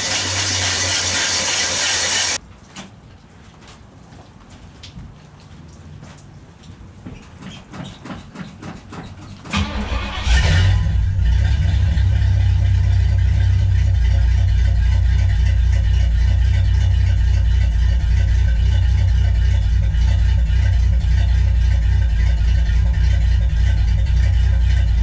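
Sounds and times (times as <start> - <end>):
engine starter cranking: 9.5 - 12.3
engine idling with deep rumble: 9.5 - 25.0.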